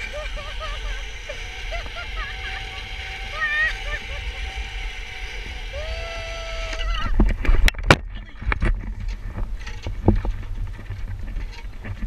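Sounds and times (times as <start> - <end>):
wind rumbling on microphone: 0.0 - 12.0
man whooping: 5.6 - 7.1.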